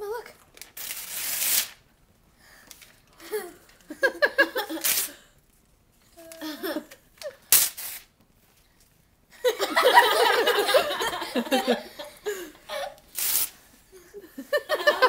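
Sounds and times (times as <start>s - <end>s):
paper tearing: 0.6s - 1.8s, 4.8s - 5.1s, 7.5s - 8.1s, 13.1s - 13.6s
woman laughing loudly: 9.4s - 13.0s, 14.1s - 15.0s.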